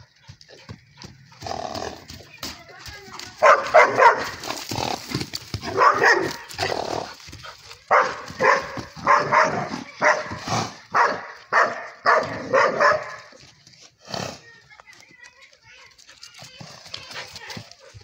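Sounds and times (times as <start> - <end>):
dog barking aggressively: 3.4 - 4.5, 5.6 - 6.9, 7.9 - 13.3.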